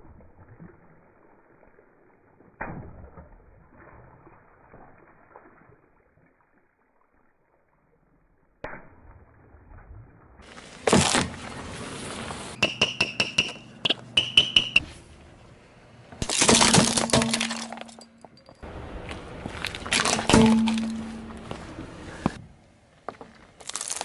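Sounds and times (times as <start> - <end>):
tyre crushing plastic objects: 10.8 - 11.5, 16.2 - 18.0, 19.5 - 21.3, 23.6 - 24.0.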